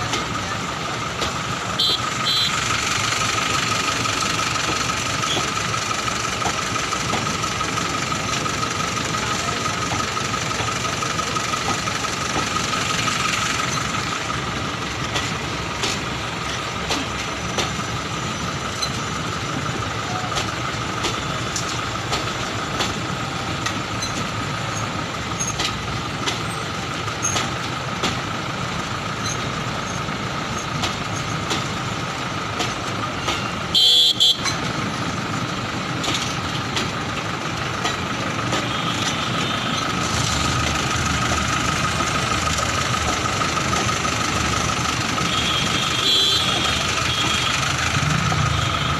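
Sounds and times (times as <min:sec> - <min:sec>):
train wheels rolling on track: 0:00.0 - 0:48.9
train horn toot: 0:33.7 - 0:34.4, 0:45.2 - 0:47.6.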